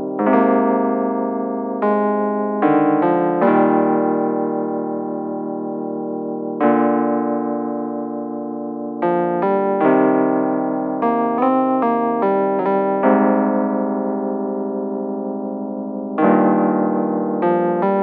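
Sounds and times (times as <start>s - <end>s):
keyboard chords: 0.0s - 18.0s.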